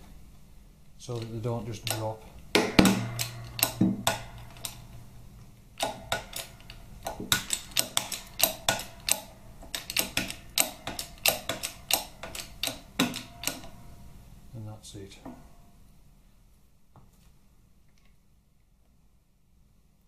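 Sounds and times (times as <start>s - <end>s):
sharp clicks of workshop press: 1.1s - 5.0s, 5.8s - 13.9s.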